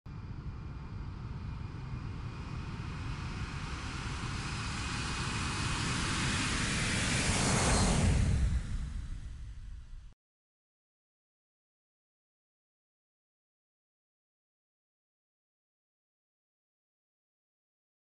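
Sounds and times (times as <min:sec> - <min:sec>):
jet aircraft roar: 0:01.2 - 0:10.1.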